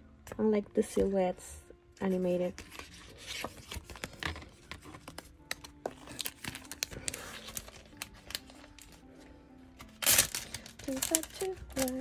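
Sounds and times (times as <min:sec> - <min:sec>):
paper and plastic sleeve handled: 0:02.2 - 0:09.0, 0:09.8 - 0:12.0.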